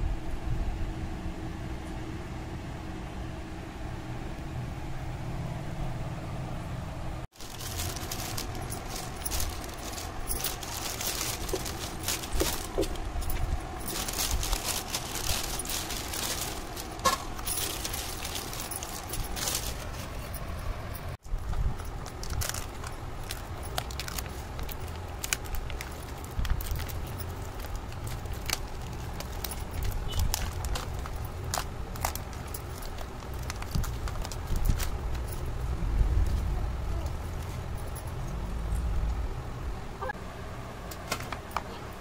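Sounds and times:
steady low rumble: 0:00.0 - 0:40.4
plastic bag rustling and crinkling: 0:07.3 - 0:20.6, 0:21.2 - 0:38.1.

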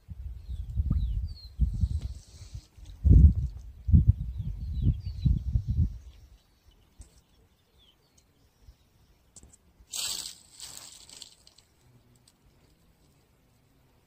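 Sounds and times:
bird chirp: 0:03.6 - 0:09.6
line hissing: 0:09.9 - 0:11.6.

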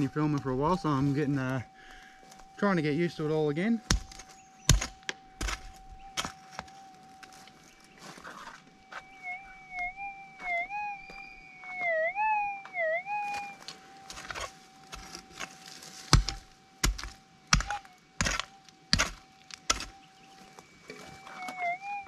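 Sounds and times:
metal detector hum: 0:00.0 - 0:16.6
pick striking ground: 0:03.8 - 0:06.7, 0:16.1 - 0:19.9.

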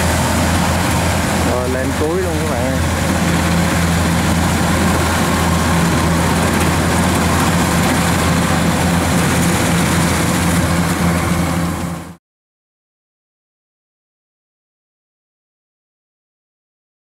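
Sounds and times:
cutting and threshing machinery: 0:00.0 - 0:12.2
diesel engine drone: 0:00.0 - 0:12.2.

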